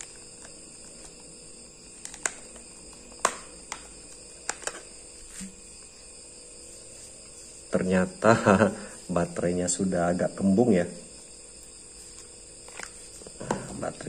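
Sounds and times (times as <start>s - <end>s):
plastic cover clicks and snaps: 2.0s - 4.8s.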